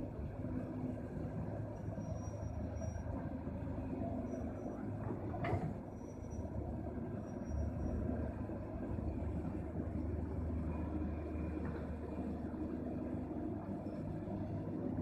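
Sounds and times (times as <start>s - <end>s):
diesel engines rumbling: 0.0s - 15.0s.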